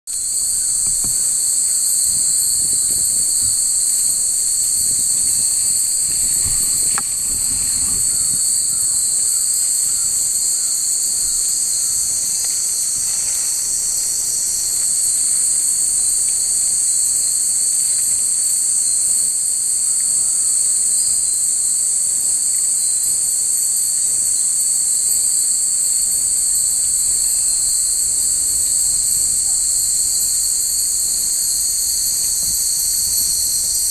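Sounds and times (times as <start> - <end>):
insects droning: 0.1 - 33.9.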